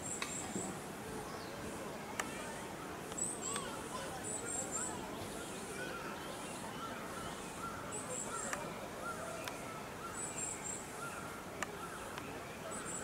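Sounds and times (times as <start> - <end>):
birds chirping: 0.0 - 13.0
faint sharp clicks: 0.1 - 0.7, 2.1 - 2.4, 3.0 - 3.7, 8.4 - 8.7, 9.4 - 9.6, 11.6 - 12.4
high twittering bird call: 3.1 - 13.0.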